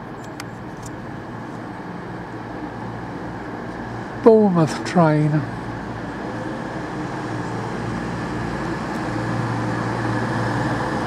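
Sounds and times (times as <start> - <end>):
diesel train rumbling: 0.0 - 11.0
train wheels on rails: 5.5 - 11.0.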